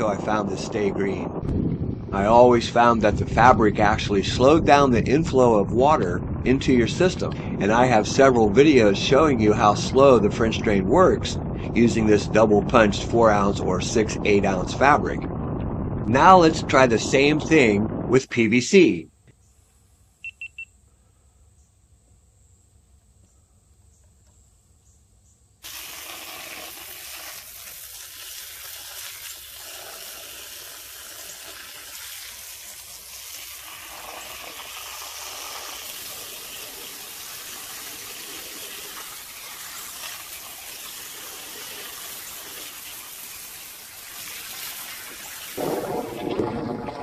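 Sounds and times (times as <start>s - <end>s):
rushing hiss of water: 25.6s - 46.2s.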